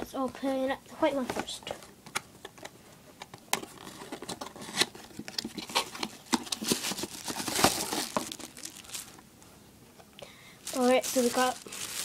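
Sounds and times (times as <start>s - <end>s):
crinkly rustle: 3.7s - 9.2s, 10.6s - 12.0s
cardboard box scraping and rustling: 3.8s - 8.3s.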